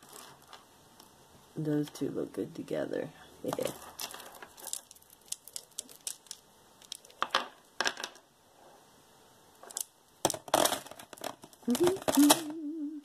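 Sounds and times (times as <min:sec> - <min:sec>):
beads clicking: 0:03.6 - 0:08.2, 0:09.6 - 0:12.6.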